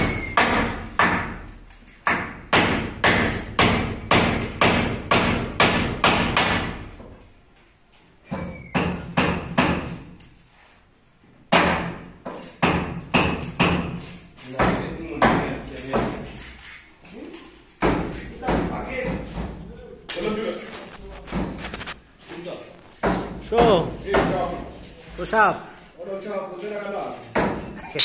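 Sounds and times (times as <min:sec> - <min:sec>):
hammer driving nails into wood: 0:00.0 - 0:06.9, 0:08.3 - 0:10.2, 0:11.5 - 0:16.4.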